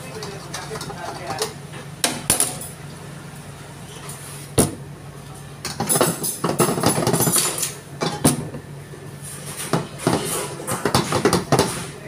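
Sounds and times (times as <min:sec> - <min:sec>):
clattering and scraping in wok: 0:09.2 - 0:12.0.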